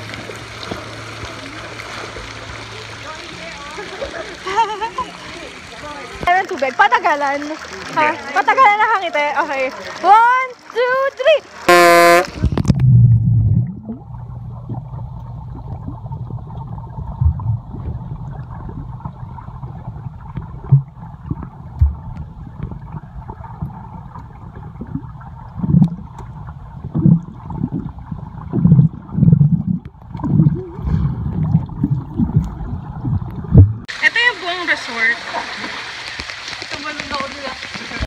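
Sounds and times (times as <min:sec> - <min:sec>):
underwater gurgles and thuds: 0:00.0 - 0:02.7, 0:11.7 - 0:33.9
muffled underwater rumble: 0:00.0 - 0:06.3, 0:11.7 - 0:33.9.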